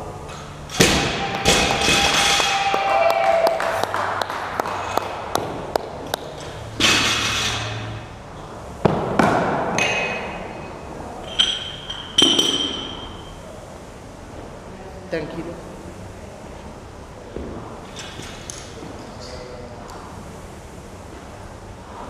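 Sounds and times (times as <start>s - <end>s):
metal plates clanking: 6.3s - 8.0s
weight plate scraping off bar: 6.8s - 8.0s.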